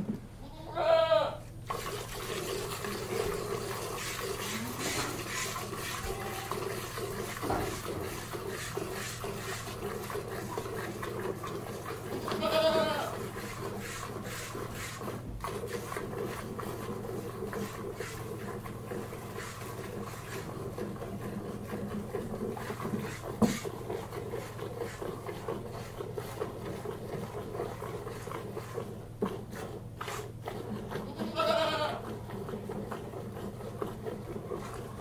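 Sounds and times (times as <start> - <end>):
goat bleating: 0.4 - 1.4, 5.8 - 6.8, 12.2 - 13.2, 31.0 - 32.1
milk squirting: 1.6 - 31.1.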